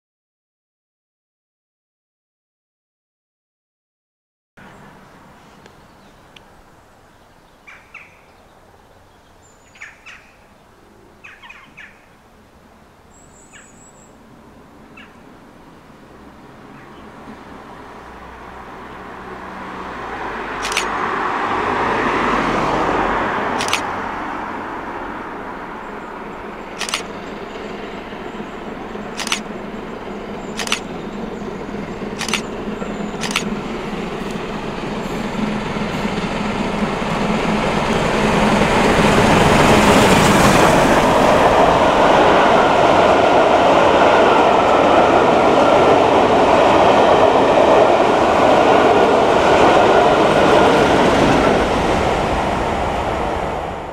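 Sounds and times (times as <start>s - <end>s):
steam train passing: 14.2s - 53.9s
sharp clicks: 20.6s - 21.0s, 23.6s - 23.9s, 26.8s - 27.2s, 29.1s - 29.5s, 30.6s - 31.0s, 32.2s - 32.5s, 33.2s - 33.5s.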